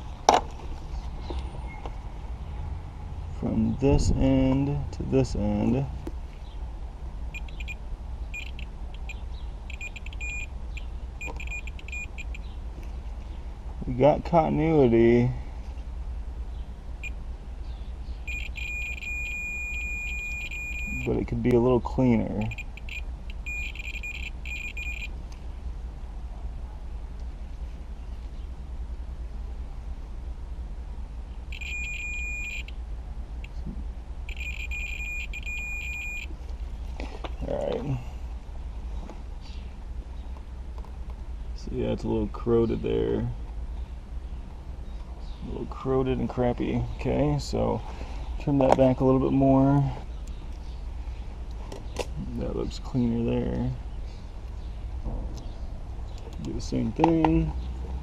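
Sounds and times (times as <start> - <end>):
steady low hum: 0.0 - 58.0
steady low rumble: 0.0 - 58.0
continuity tester beeping: 7.3 - 12.5, 18.3 - 21.2, 22.4 - 25.2, 31.5 - 32.7, 34.3 - 36.3.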